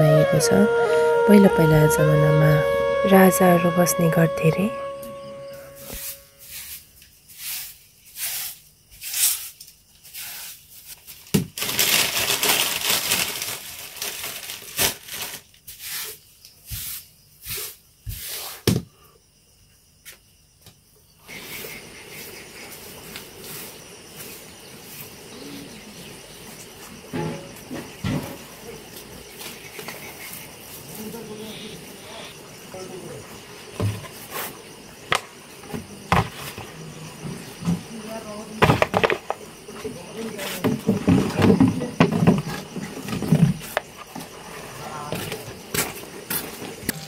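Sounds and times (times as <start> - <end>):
broom sweeping concrete floor: 5.6 - 11.3, 14.6 - 18.7, 21.3 - 25.2, 33.9 - 34.7, 40.2 - 40.8.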